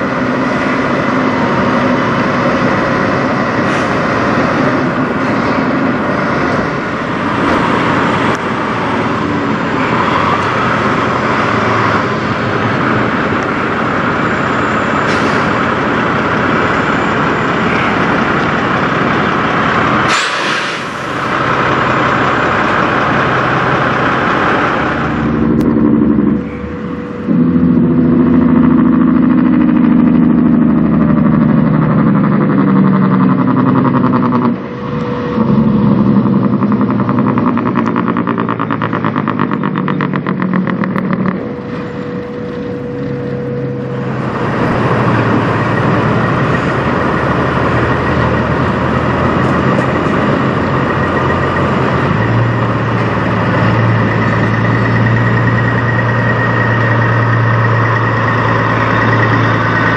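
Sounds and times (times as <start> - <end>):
diesel truck engines running: 0.0 - 59.9
heavy truck engine droning: 0.0 - 59.9.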